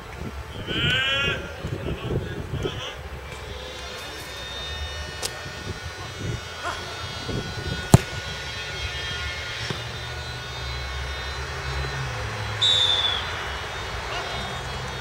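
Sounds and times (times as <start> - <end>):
football kicked thud: 7.9 - 8.2
short high whistle: 12.6 - 15.0.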